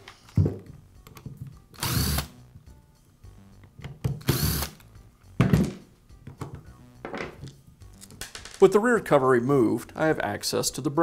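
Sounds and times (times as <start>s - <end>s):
cordless drill running: 1.8s - 2.3s, 4.2s - 4.8s.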